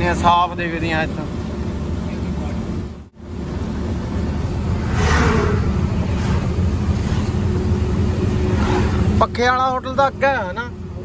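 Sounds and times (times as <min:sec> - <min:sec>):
truck engine and road rumble: 0:00.0 - 0:11.0
rushing whoosh: 0:04.5 - 0:09.2.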